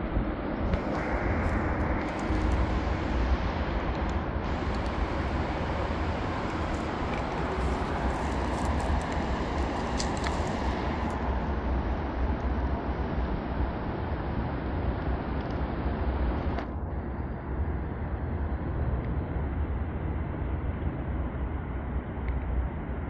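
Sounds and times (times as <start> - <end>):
low rumble: 0.0 - 19.7
even hiss: 0.7 - 11.4.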